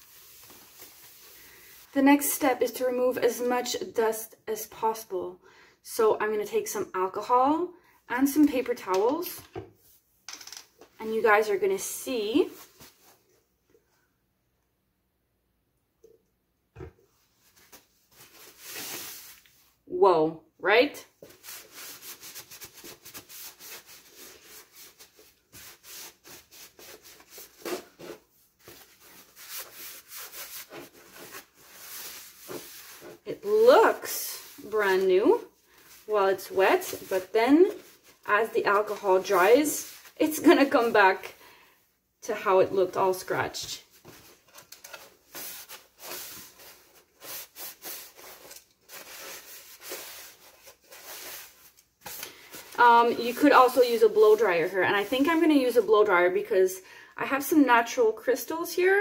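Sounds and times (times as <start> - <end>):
paper towel scrubbing canvas: 0.0 - 2.0, 17.4 - 19.6, 21.2 - 41.3, 45.2 - 55.8.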